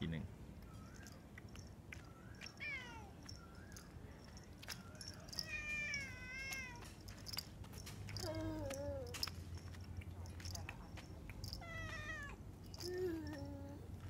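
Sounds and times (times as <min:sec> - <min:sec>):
cat meowing: 0:02.5 - 0:03.2, 0:05.3 - 0:06.9, 0:11.6 - 0:12.4.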